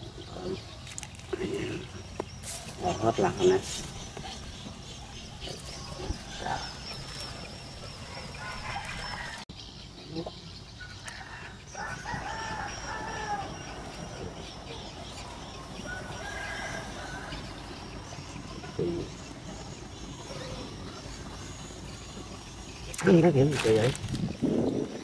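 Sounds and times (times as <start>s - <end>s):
rooster crowing: 8.1s - 9.5s, 11.0s - 14.2s, 15.8s - 17.6s.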